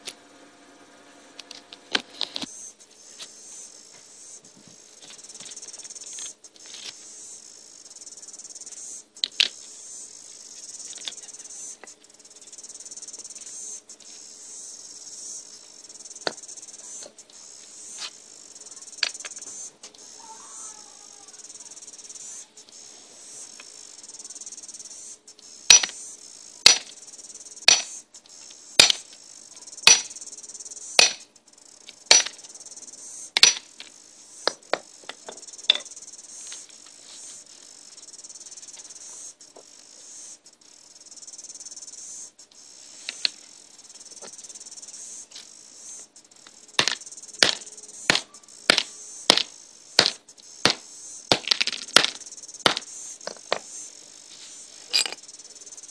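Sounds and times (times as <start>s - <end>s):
cicadas chorus: 1.0s - 55.9s
hammer blows cracking: 25.7s - 25.9s, 26.7s - 26.9s, 27.7s - 27.9s, 28.8s - 29.0s, 29.9s - 30.1s, 31.0s - 31.2s, 32.1s - 32.4s, 33.4s - 33.7s, 46.8s - 52.9s.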